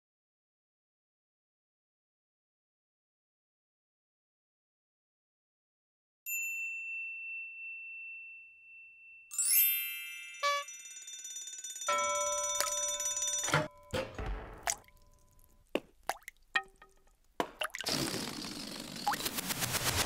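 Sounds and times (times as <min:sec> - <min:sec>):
bell-like ping: 0:06.3 - 0:14.1
chord of chime tones: 0:06.4 - 0:14.0.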